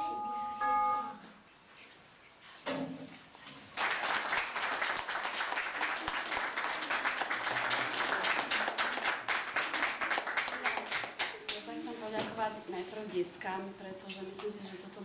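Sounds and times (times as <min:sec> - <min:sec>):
audience applauding: 0:03.7 - 0:11.6.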